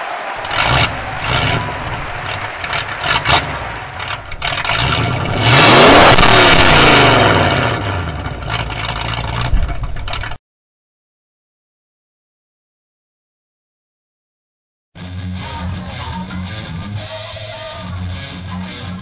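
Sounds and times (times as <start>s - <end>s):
vehicle engine revving: 0.4s - 10.4s.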